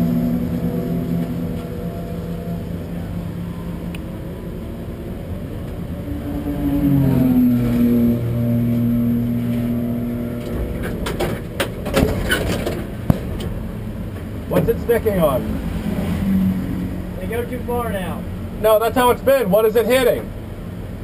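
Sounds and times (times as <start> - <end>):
car engine revving: 0.0 - 19.6
sharp knocks and clicks: 10.4 - 14.8.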